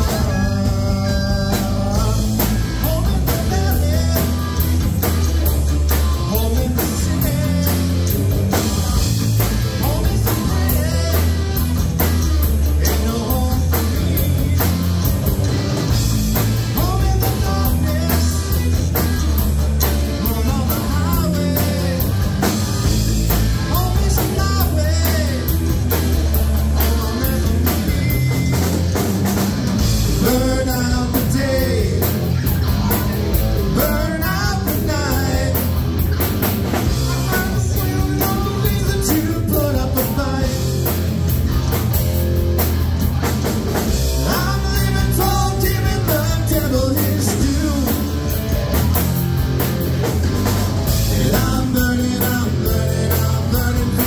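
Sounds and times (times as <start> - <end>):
male singer: 0.0 - 4.8, 5.9 - 9.0, 9.7 - 11.8, 12.6 - 15.2, 16.7 - 22.3, 23.7 - 25.6, 26.7 - 29.0, 30.1 - 35.8, 36.8 - 41.0, 44.2 - 48.2, 51.0 - 54.0
bass guitar: 0.0 - 54.0
drum kit: 0.0 - 54.0
electric guitar: 0.0 - 54.0.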